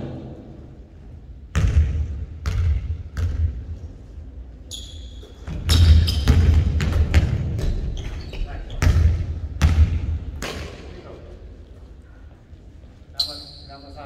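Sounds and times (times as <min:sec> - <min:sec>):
basketball bouncing on hardwood floor: 0:01.5 - 0:03.5, 0:05.5 - 0:08.1, 0:08.8 - 0:10.5
sneaker squeaks: 0:04.6 - 0:06.7, 0:07.6 - 0:09.0, 0:13.1 - 0:14.0.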